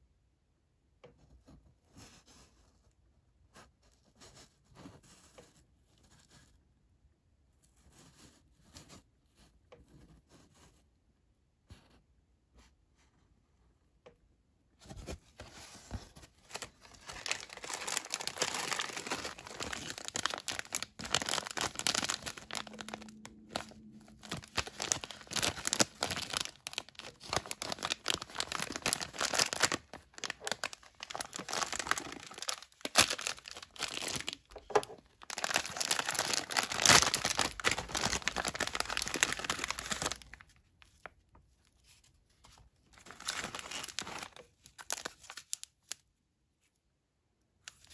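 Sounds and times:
plastic wrapper crinkling: 16.0s - 46.1s.

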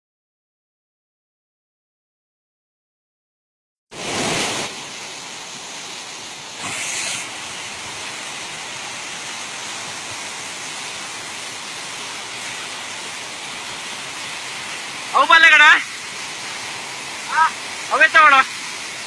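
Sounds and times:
floodwater rushing: 3.9s - 19.0s.

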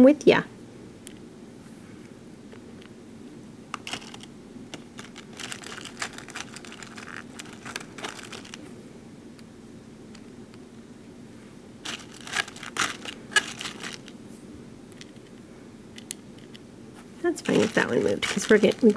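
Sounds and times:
plastic beads clicking and rattling: 3.8s - 8.6s, 11.9s - 14.1s, 17.4s - 18.9s.

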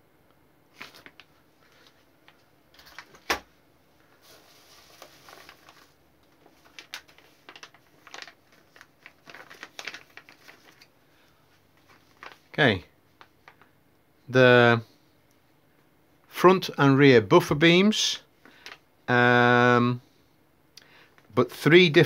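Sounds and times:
plastic bags crinkling: 0.8s - 3.4s, 4.1s - 12.6s.

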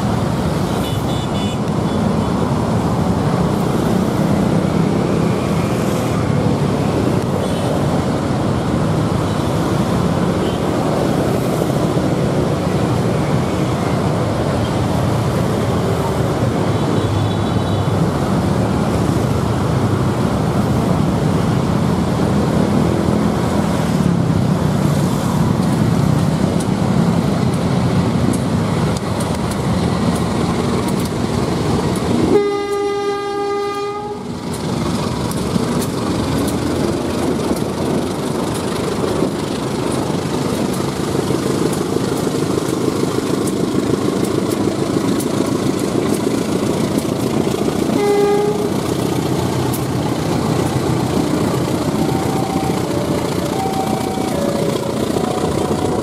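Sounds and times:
diesel locomotive engines: 0.0s - 56.0s
wheels rumbling on rail: 0.0s - 56.0s
train horn blast: 32.2s - 34.4s, 47.9s - 48.8s.

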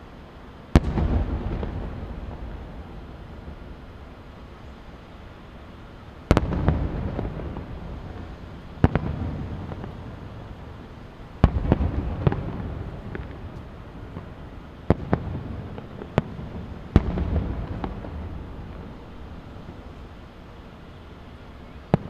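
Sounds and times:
distant firework booms: 0.7s - 4.2s, 6.3s - 10.5s, 11.4s - 19.5s.

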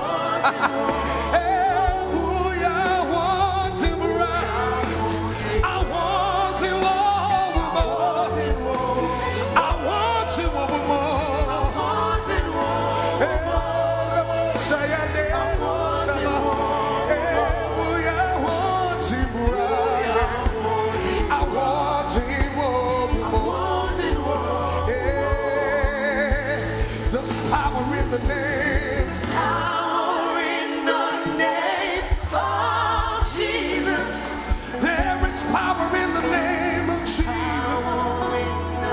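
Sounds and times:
steady bass line: 0.0s - 29.9s
voices singing with vibrato: 0.0s - 38.9s.

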